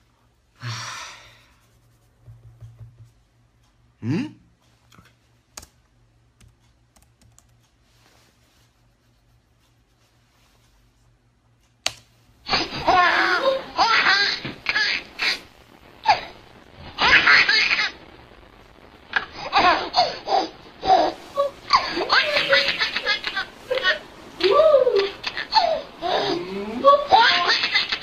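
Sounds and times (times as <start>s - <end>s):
baby laughing: 12.5s - 15.4s, 17.0s - 18.0s, 19.2s - 28.0s.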